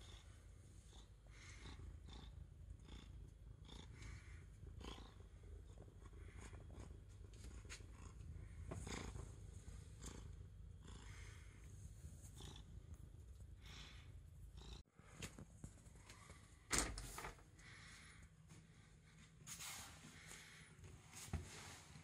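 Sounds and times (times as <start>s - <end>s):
cat purring: 0.0s - 14.8s.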